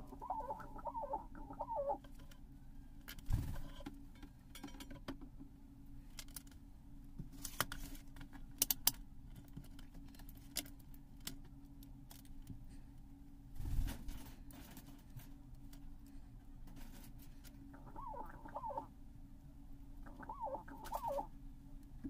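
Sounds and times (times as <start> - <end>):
low hum: 0.0 - 3.7, 15.7 - 22.0.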